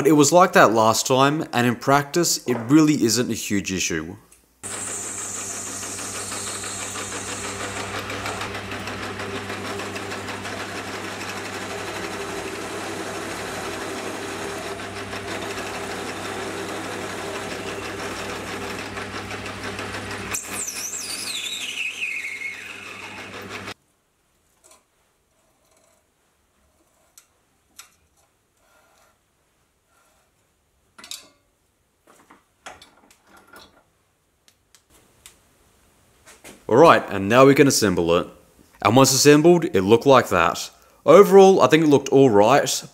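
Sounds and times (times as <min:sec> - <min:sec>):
metal lathe humming: 0:04.6 - 0:23.8.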